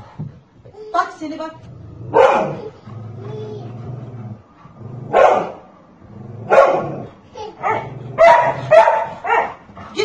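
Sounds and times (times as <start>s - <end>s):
dog barking: 2.1s - 2.6s, 5.1s - 5.6s, 6.5s - 7.0s, 7.6s - 9.6s.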